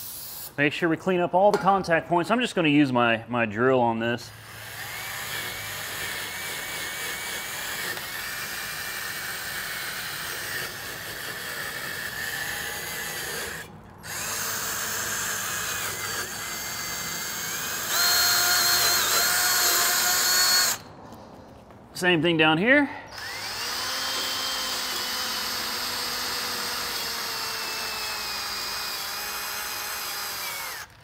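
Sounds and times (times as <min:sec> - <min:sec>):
drill wire brush scrubbing metal: 0:04.6 - 0:20.8.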